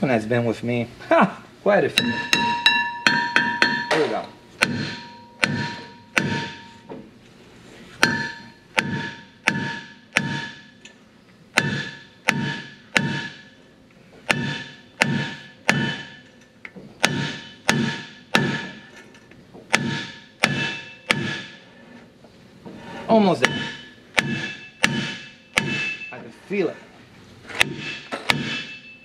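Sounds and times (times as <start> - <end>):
hammer blows on ringing steel disc: 2.0 - 6.9, 8.0 - 10.8, 23.2 - 26.3.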